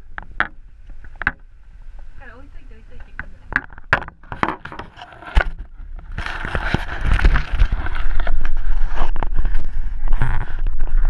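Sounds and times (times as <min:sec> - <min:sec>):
scraping and knocking on camera case: 0:03.6 - 0:09.4.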